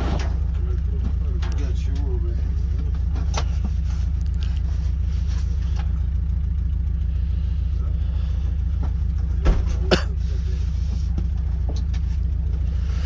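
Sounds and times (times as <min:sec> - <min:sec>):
truck engine idling: 0:00.0 - 0:13.0
faint knocks and rustles of gear: 0:10.8 - 0:12.7.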